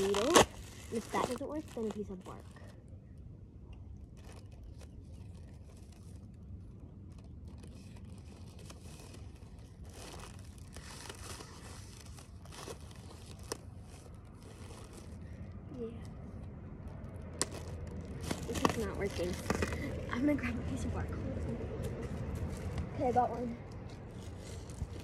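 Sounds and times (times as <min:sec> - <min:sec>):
plastic packet crinkling: 0:00.0 - 0:02.8, 0:03.8 - 0:15.6, 0:16.5 - 0:20.1
low background rumble: 0:00.0 - 0:25.0.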